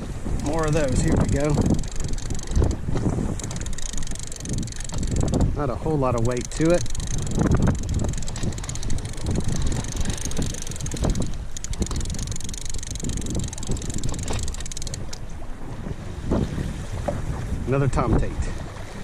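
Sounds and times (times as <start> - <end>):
wind rumble on microphone: 0.0 - 19.0
fishing reel cranking whir: 0.4 - 15.2.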